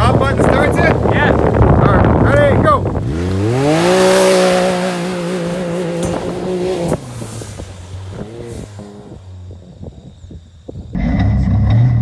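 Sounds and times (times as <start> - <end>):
engine revving at full throttle: 0.7 - 9.9.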